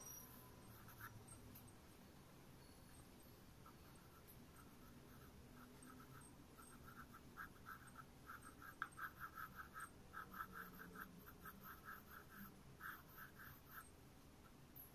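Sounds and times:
pencil scratching on paper: 0.7s - 1.4s, 3.6s - 13.9s.

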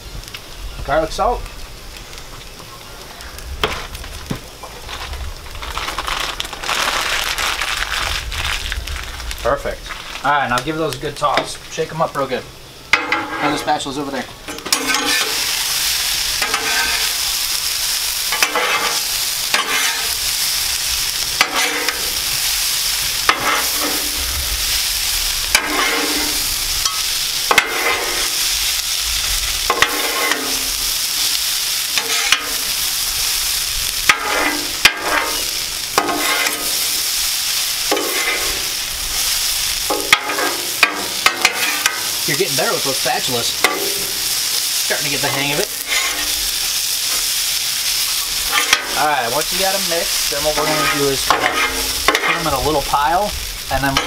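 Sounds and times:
potatoes sizzling in hot oil: 0.0s - 54.0s
metal spatulas scraping griddle: 12.9s - 13.8s, 14.5s - 15.6s, 16.4s - 17.2s, 18.3s - 20.2s, 21.4s - 22.1s, 23.2s - 24.2s, 25.5s - 28.4s, 29.7s - 30.8s, 32.0s - 32.7s, 34.1s - 36.8s, 37.9s - 38.7s, 39.9s - 42.1s, 45.1s - 46.4s, 48.2s - 52.6s.

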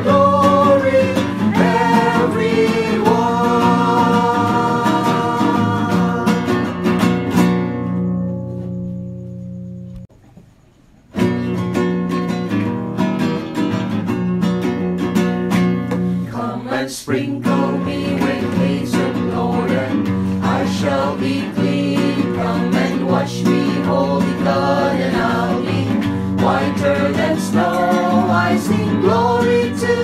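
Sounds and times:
strummed acoustic guitar: 0.0s - 10.0s, 11.1s - 30.0s.

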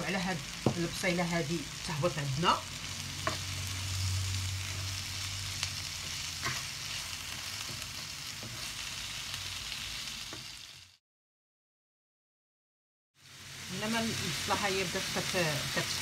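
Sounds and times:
leeks sizzling in a frying pan: 0.0s - 11.0s, 13.2s - 16.0s
wooden spoon knocking on pan: 0.6s - 0.9s.

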